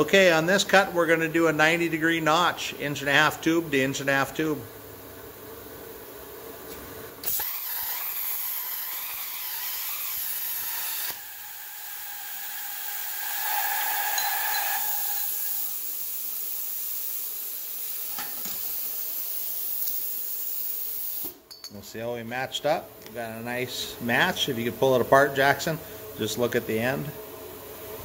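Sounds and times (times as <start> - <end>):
plasma cutter torch hissing: 7.2 - 21.4.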